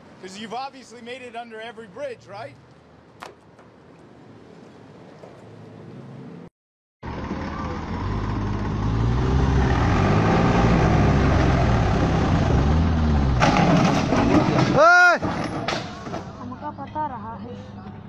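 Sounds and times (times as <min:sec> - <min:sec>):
road noise: 0:00.0 - 0:18.0
tractor diesel engine revving: 0:07.0 - 0:14.7.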